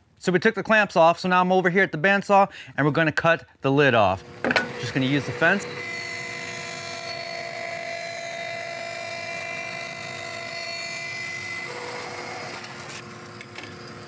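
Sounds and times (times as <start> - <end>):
bandsaw cutting wood: 4.3 - 13.1.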